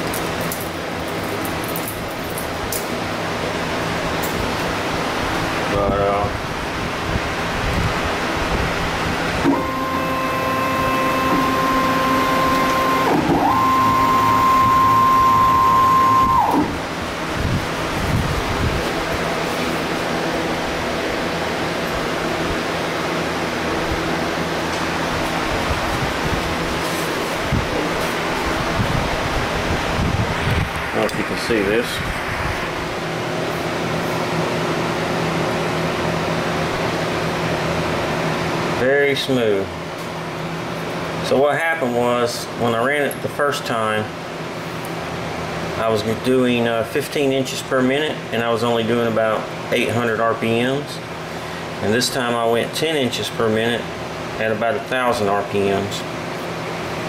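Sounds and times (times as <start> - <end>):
machine hum with fan hiss: 0.0 - 57.0
lathe drive whining: 9.2 - 22.4
steady rushing noise: 16.2 - 35.9.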